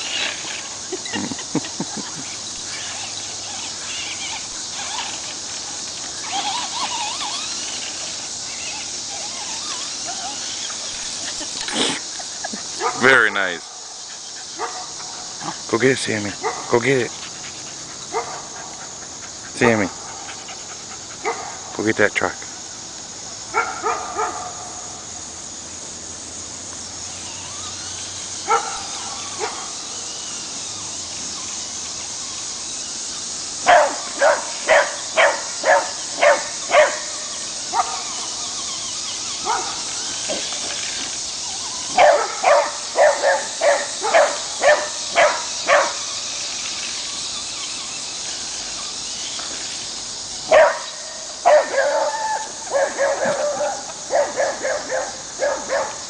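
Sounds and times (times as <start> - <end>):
steady high hiss: 0.0 - 56.0
dog barking: 14.6 - 15.0, 16.4 - 16.8, 18.1 - 18.6, 21.2 - 21.6, 23.5 - 24.7, 28.5 - 29.6, 33.6 - 37.1, 37.7 - 38.2, 39.4 - 39.8, 41.9 - 46.0, 50.5 - 56.0.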